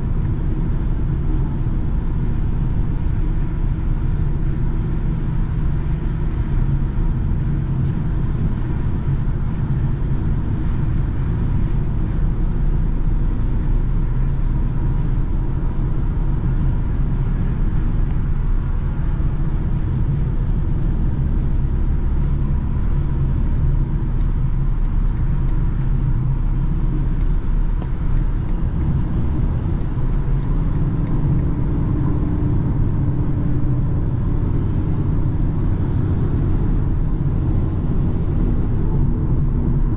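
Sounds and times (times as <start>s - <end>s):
car interior road drone: 0.0s - 39.9s.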